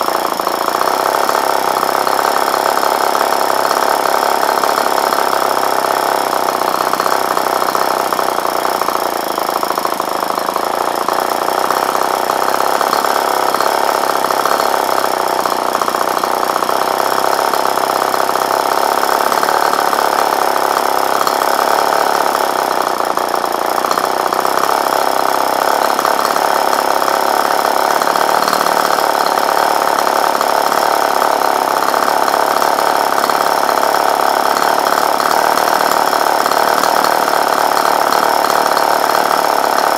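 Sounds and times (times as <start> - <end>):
model engine running: 0.0 - 39.9.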